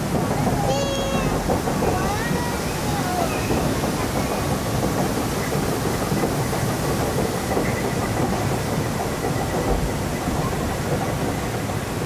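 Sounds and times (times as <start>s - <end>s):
conveyor lift rumbling clatter: 0.0s - 12.0s.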